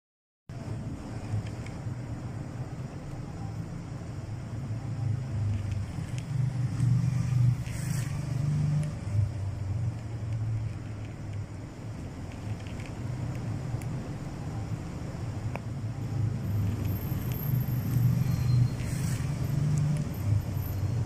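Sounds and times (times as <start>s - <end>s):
cat chewing dry kibble: 5.4s - 7.8s, 8.6s - 14.3s.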